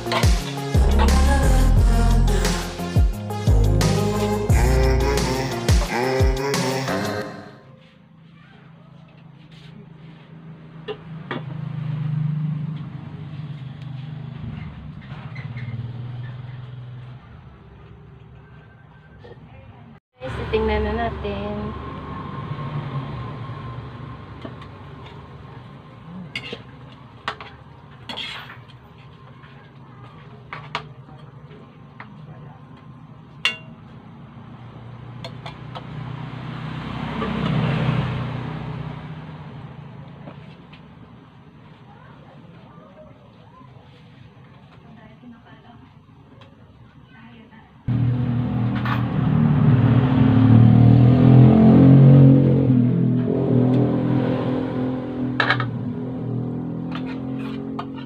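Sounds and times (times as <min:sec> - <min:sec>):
vehicle passing with low rumble: 0:10.0 - 0:18.2, 0:20.2 - 0:28.0, 0:32.6 - 0:41.6, 0:47.9 - 0:58.0
spatula clinking against wok: 0:33.4 - 0:33.8.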